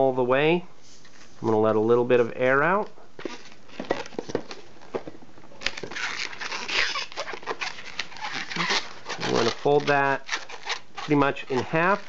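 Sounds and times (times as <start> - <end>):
fingers squeaking on latex: 5.5 - 12.0
balloon air hissing squeal: 6.0 - 10.6.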